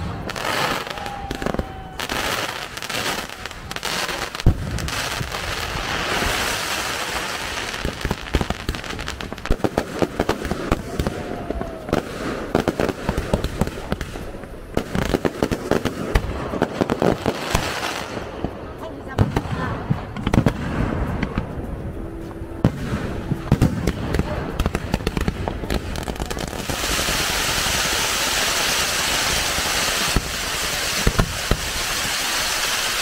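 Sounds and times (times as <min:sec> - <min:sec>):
fireworks fountains hissing: 0:00.0 - 0:33.0
firework bang: 0:30.0 - 0:31.8.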